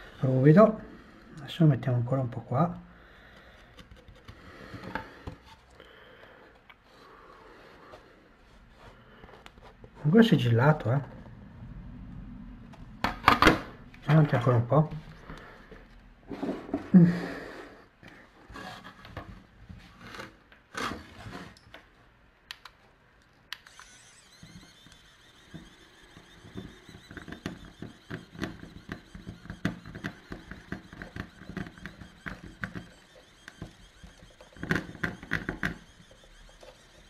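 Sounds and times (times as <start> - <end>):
clicks: 22.5 - 37.0
pen feed motor whirring: 23.5 - 37.0.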